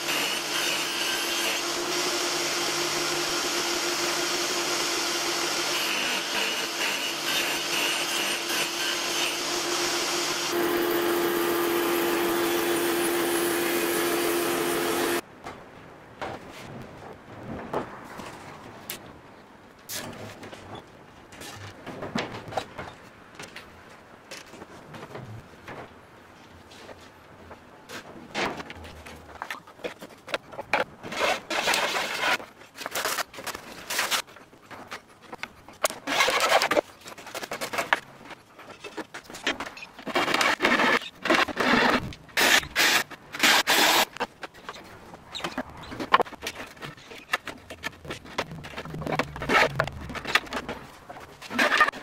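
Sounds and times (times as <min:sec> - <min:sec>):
chisel scraping wood: 0:51.2 - 0:52.0.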